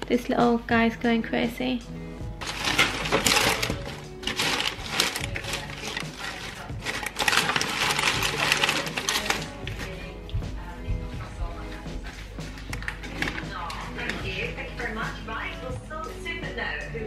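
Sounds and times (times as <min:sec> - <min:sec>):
background music: 0:00.0 - 0:17.0
cellophane crinkling: 0:02.4 - 0:10.0.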